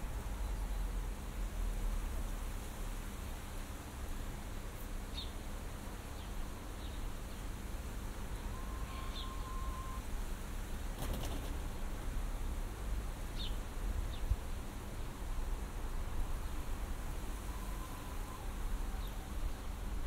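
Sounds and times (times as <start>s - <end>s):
windy rumble and hiss: 0.0s - 20.0s
small birds chirping: 8.4s - 10.0s, 13.4s - 14.4s
flutter of sharp sounds: 10.9s - 11.7s.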